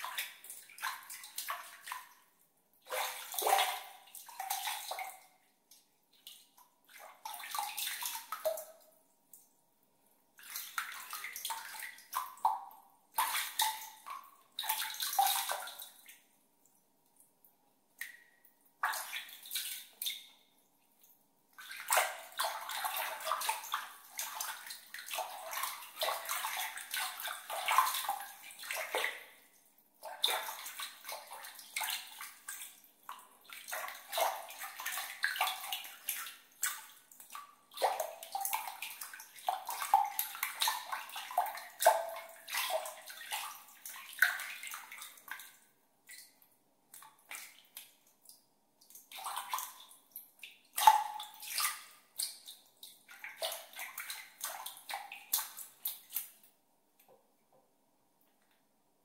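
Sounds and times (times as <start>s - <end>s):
water splashing and gurgling: 2.9s - 5.2s, 21.6s - 29.4s.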